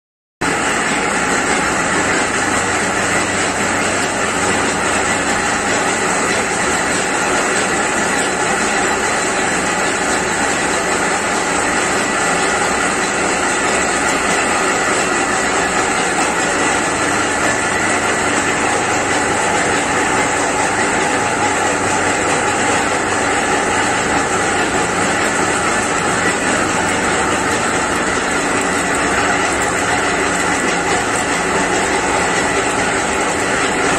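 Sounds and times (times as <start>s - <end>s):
oil expeller mechanical noise: 0.4s - 33.9s.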